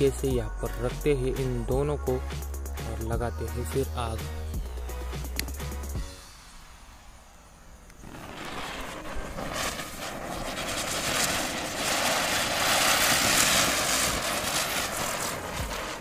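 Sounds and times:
firecrackers hissing sparks: 0.0 - 16.0.

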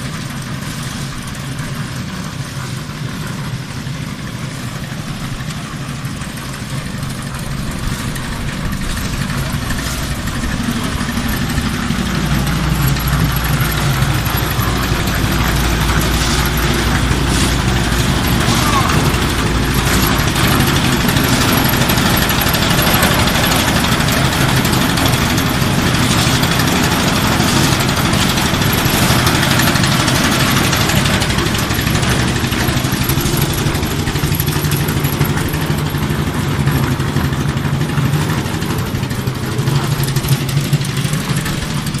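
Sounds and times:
concrete mixer engine running: 0.0 - 42.0.

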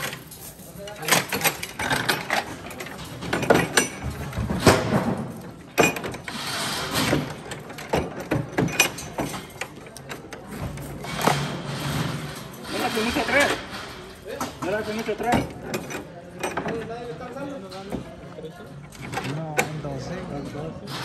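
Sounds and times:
clicks knocks and mechanical rattling: 0.0 - 21.0
people talking: 12.6 - 13.6.

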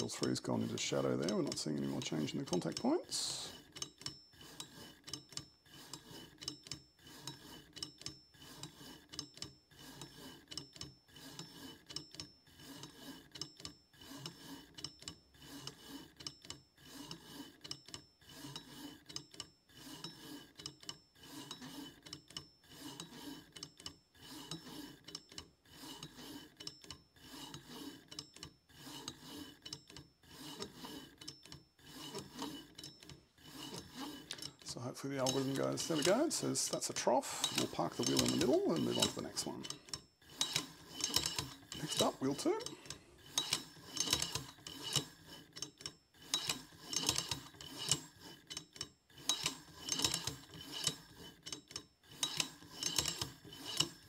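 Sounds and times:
stepper motor rasping whir: 27.2 - 45.6.

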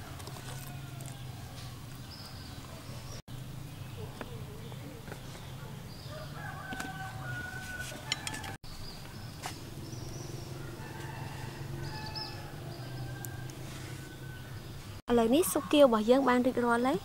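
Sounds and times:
rooster crowing: 0.0 - 1.8, 6.0 - 8.6, 10.4 - 14.7.

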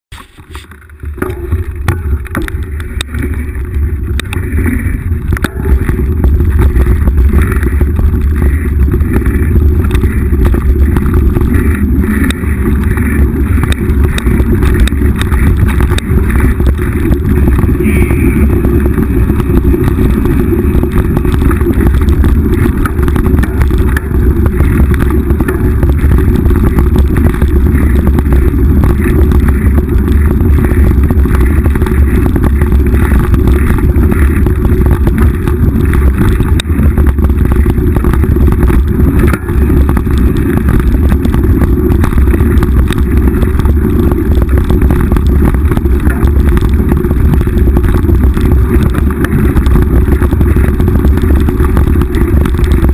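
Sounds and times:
wind and trail rumble: 0.0 - 52.9
bike rattling over ground: 0.1 - 52.9.

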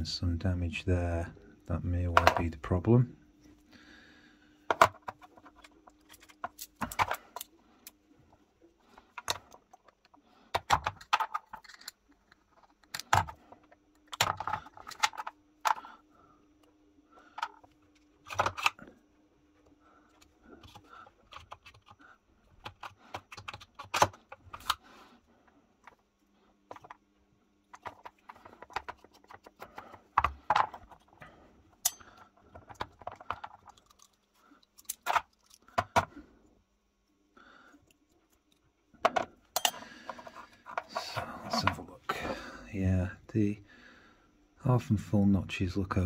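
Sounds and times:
faint steady hum: 0.0 - 46.0
metallic clicks of small parts: 9.2 - 15.8, 31.8 - 36.0.

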